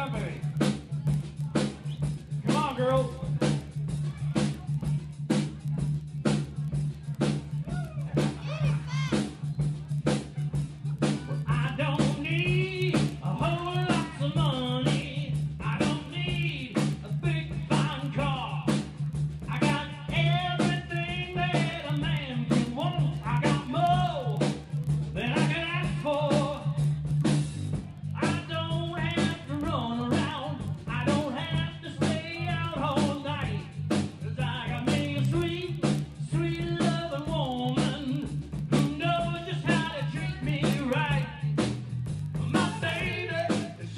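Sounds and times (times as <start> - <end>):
drums: 0.0 - 43.9
steady bass line: 0.0 - 43.9
person singing: 10.2 - 18.8, 19.5 - 24.6, 28.1 - 41.6, 42.4 - 43.9.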